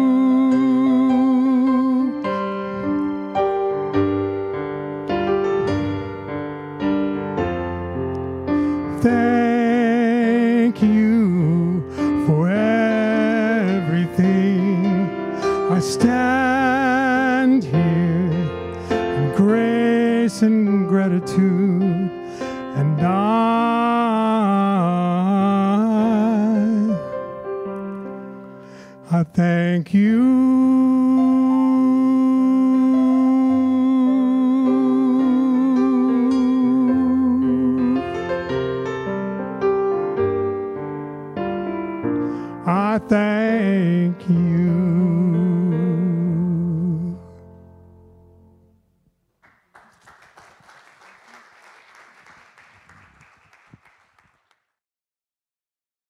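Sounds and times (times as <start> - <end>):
man singing with vibrato: 0.0 - 2.8, 8.8 - 27.2, 28.9 - 38.5, 42.5 - 47.4
electric keyboard chord: 0.0 - 9.4
keyboard chords: 0.0 - 49.1
congregation applauding: 49.4 - 54.7.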